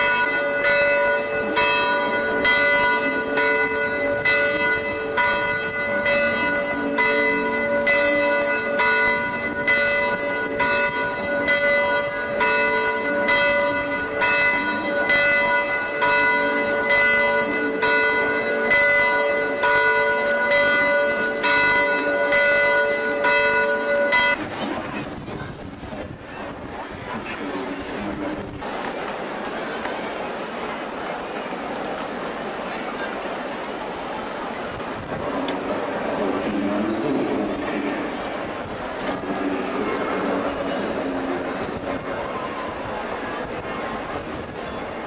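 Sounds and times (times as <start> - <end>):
church bells pealing: 0.0 - 28.8, 34.9 - 45.0.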